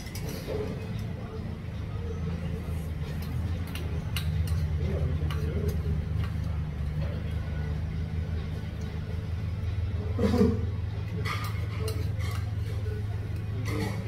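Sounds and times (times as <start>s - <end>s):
faint chatter: 0.0s - 14.0s
spoon and chopsticks clinking on bowl: 3.1s - 6.5s, 11.1s - 12.7s.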